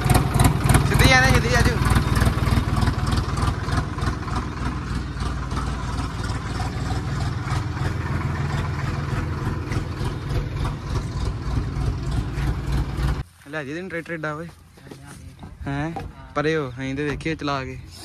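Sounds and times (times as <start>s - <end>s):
diesel tractor engine running: 0.0s - 18.0s.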